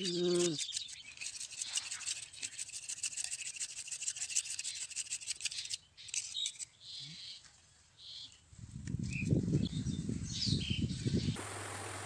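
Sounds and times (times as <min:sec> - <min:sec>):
knife scraping bamboo stick: 0:00.0 - 0:06.8.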